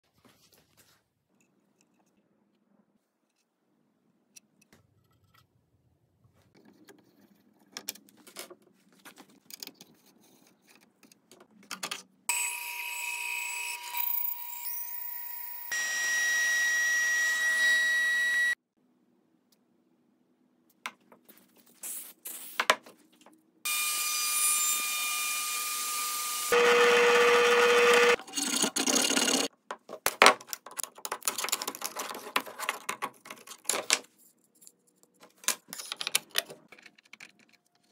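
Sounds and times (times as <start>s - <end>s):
power tools running: 12.3s - 18.6s, 23.7s - 28.2s.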